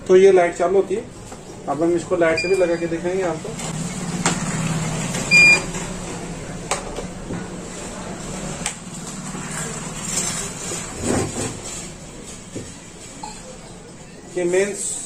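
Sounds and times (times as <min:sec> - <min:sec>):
buzzer beep: 0:02.4 - 0:02.8, 0:05.3 - 0:05.7.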